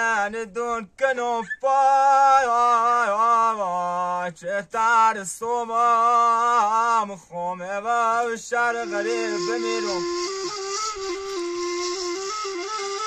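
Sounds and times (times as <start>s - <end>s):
man singing slow melody: 0.0s - 10.3s
wooden end-blown flute: 8.8s - 13.0s.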